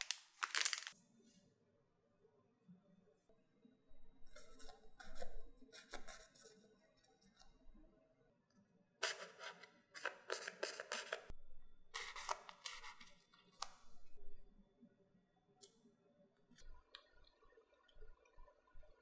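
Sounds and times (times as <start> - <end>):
pastry shells crackling: 0.0 - 1.0.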